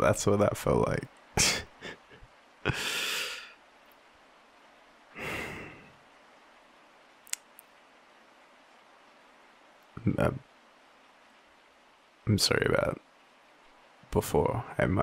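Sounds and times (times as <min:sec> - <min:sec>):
man sighing: 0:01.4 - 0:03.6, 0:05.1 - 0:06.0
faint clicks: 0:03.8 - 0:04.1, 0:07.2 - 0:07.8.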